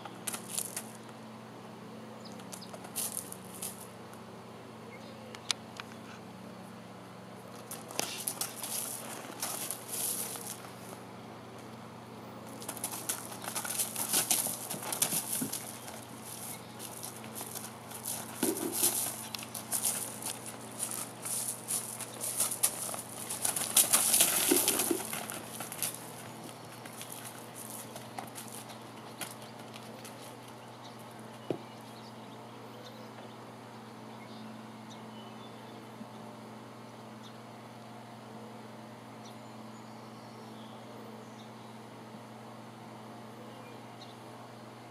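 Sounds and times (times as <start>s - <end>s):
hooves crunching on gravel: 0.0s - 1.0s, 2.4s - 4.0s, 7.4s - 11.8s, 12.4s - 32.0s
steady low hum: 0.0s - 44.9s.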